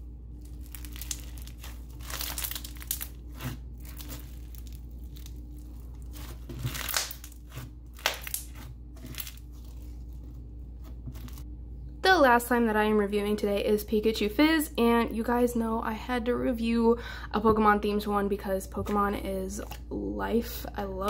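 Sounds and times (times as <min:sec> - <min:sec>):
slime crackling and popping: 0:00.3 - 0:11.4.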